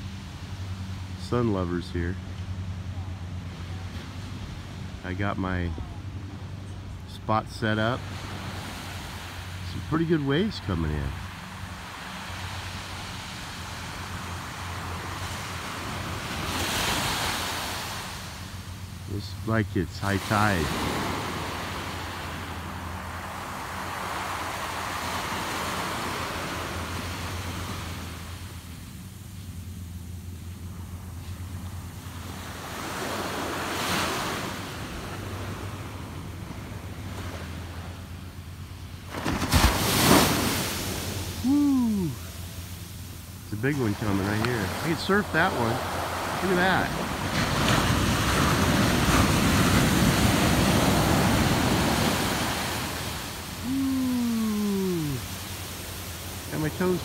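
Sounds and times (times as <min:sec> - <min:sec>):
ocean surf on beach: 0:00.0 - 0:57.0
low steady rumble: 0:17.4 - 0:33.7, 0:40.4 - 0:57.0.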